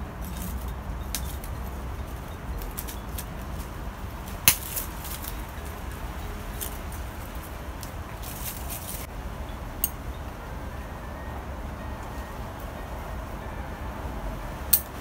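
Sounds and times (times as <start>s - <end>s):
scissors snipping twigs: 0.0s - 9.1s
leaves rustling: 0.0s - 15.0s.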